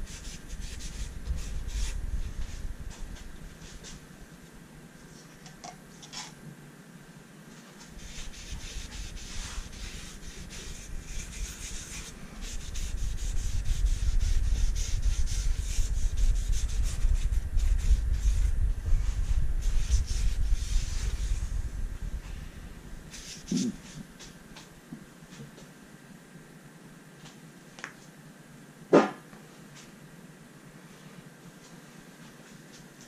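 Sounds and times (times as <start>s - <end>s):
low rumble: 0.0s - 4.4s, 8.3s - 24.2s.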